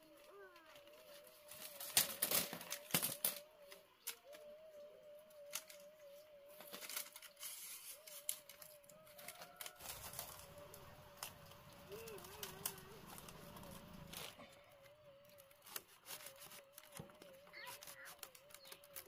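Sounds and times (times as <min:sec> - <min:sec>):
bamboo strips clicking and knocking: 0:00.0 - 0:04.5, 0:05.3 - 0:19.0.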